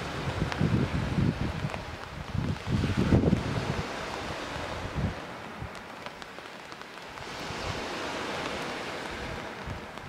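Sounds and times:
rain falling: 0:00.0 - 0:10.0
waves washing onto pebbles: 0:00.0 - 0:10.0.

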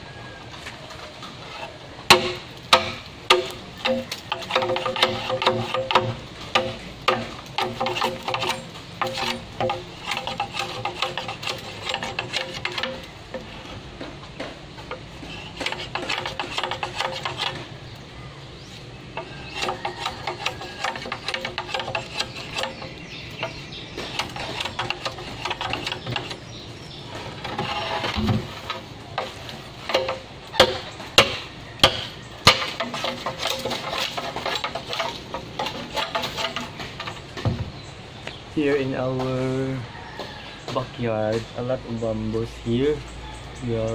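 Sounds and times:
machete chopping bamboo: 0:02.1 - 0:13.5, 0:28.2 - 0:36.8.

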